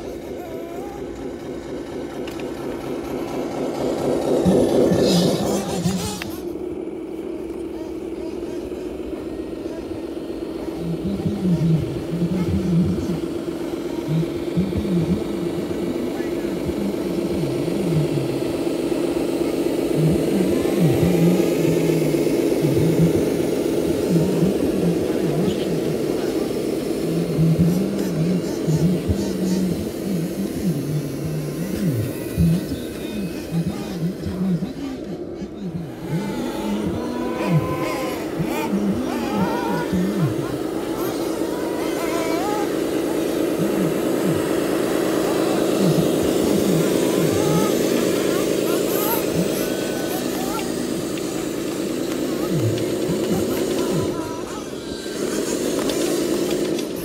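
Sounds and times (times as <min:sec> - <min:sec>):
toy truck motor hum and whine: 0:00.0 - 0:57.0.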